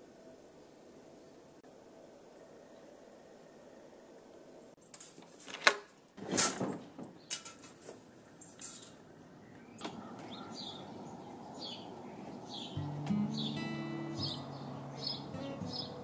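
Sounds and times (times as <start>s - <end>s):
outdoor hush: 0.0s - 16.0s
sliding door clacking and scraping: 5.0s - 8.0s
birds chirping: 6.6s - 16.0s.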